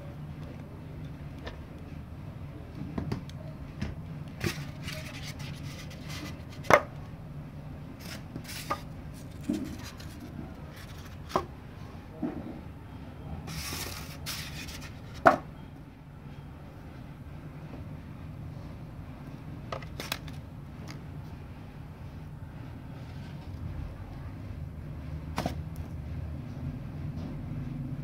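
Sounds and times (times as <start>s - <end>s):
paper rustling: 4.4s - 6.8s, 8.0s - 11.4s, 13.5s - 15.2s.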